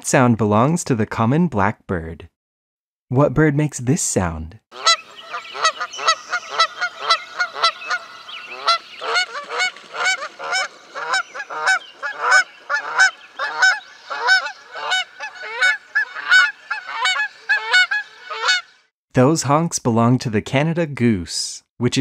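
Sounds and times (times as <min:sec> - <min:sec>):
geese honking: 0:04.8 - 0:18.8.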